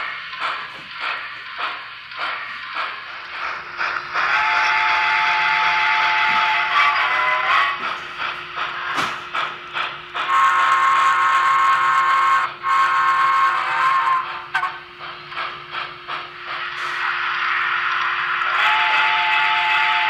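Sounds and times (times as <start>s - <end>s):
steam exhaust chuffs: 0.0s - 20.0s
steam whistle: 4.2s - 7.8s, 10.3s - 14.8s, 18.4s - 20.0s.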